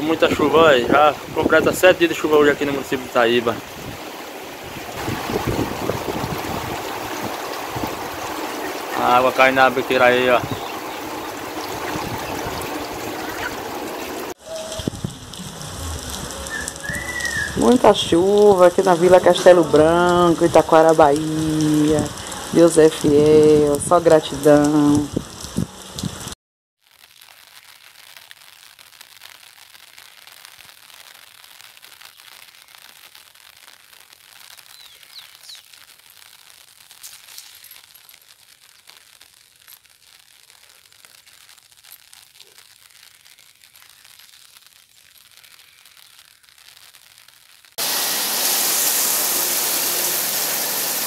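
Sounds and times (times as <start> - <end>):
heavy rain pouring: 0.0 - 51.0
soft hiss with light crackles: 26.8 - 47.8.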